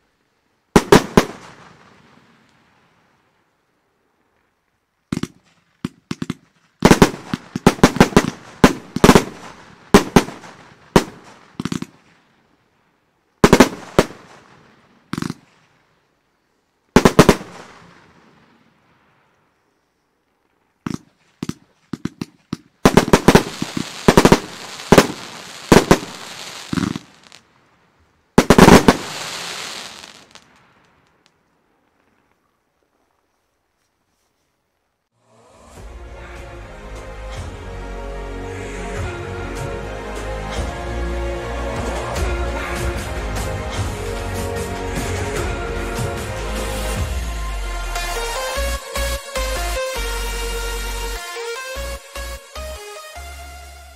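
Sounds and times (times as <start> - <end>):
fireworks bangs: 0.8 - 3.2, 5.1 - 12.4, 13.4 - 15.8, 17.0 - 19.3, 20.9 - 27.7, 28.3 - 31.3, 40.4 - 48.3
fireworks crackle hiss: 5.1 - 12.4, 13.4 - 16.0, 17.0 - 19.4, 22.2 - 31.5, 41.5 - 48.7.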